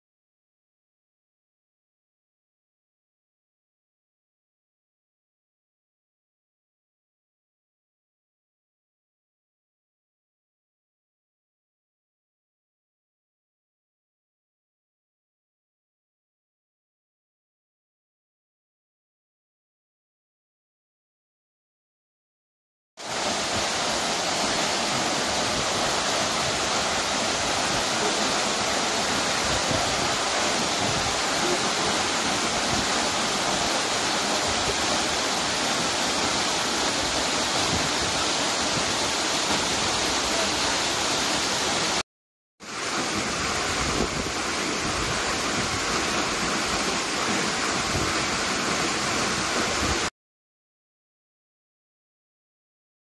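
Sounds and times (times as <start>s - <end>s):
waterfall rushing: 23.0s - 42.0s, 42.6s - 50.1s.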